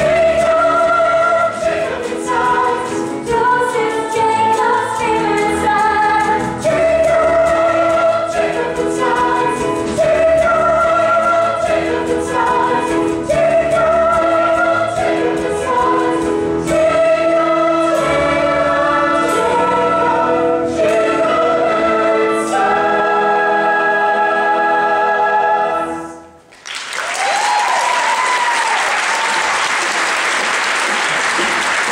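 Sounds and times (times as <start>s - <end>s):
chorus singing: 0.0s - 26.4s
pit orchestra: 0.0s - 26.5s
audience applause: 26.5s - 31.9s.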